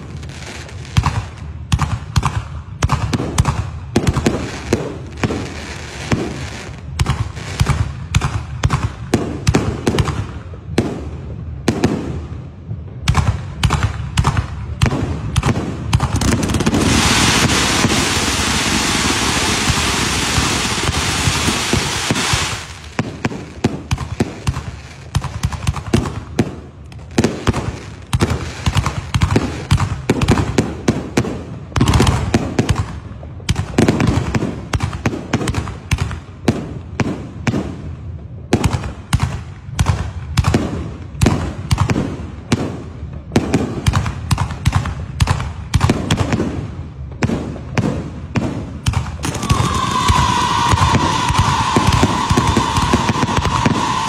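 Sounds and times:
firework cracks and bangs: 0.0s - 54.0s
firework fountain hissing: 4.2s - 7.8s, 16.1s - 26.4s, 49.2s - 54.0s.

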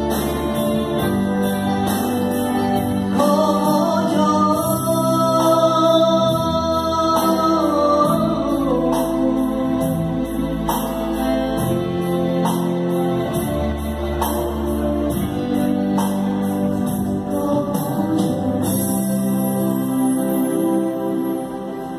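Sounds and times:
electronic keyboard chords: 0.0s - 21.9s.

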